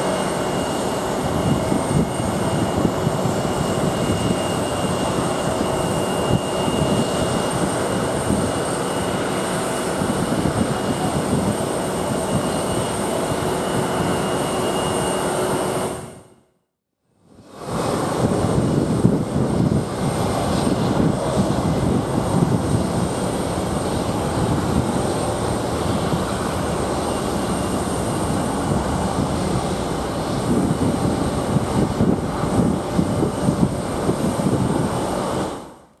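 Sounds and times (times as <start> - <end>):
jet engines rumbling: 0.0 - 16.3, 17.3 - 36.0
faint high whine: 23.0 - 33.8.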